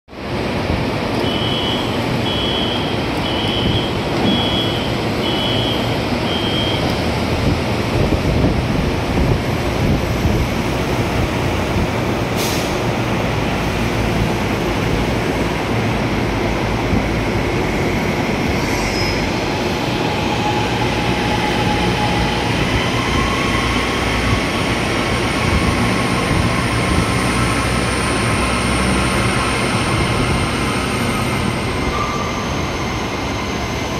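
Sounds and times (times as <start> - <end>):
train whine: 0.2 - 33.9
short high beeps: 1.2 - 7.0.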